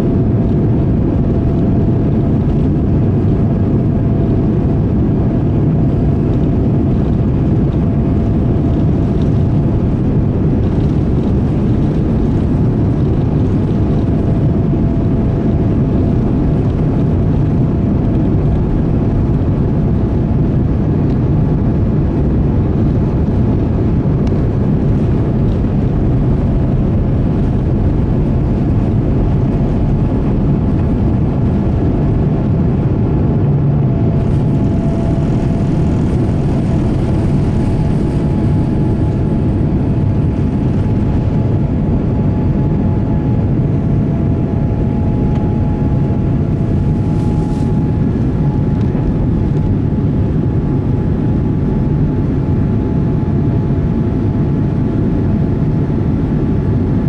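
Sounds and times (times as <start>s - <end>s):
jet engine roar in cabin: 0.0s - 57.0s.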